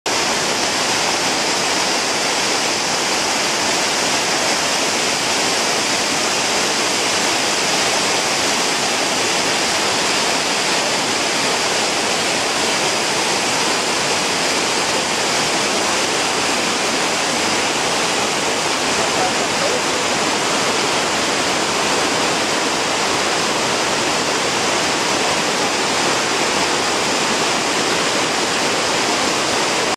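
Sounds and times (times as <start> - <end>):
river water rushing over rocks: 0.1 - 29.9.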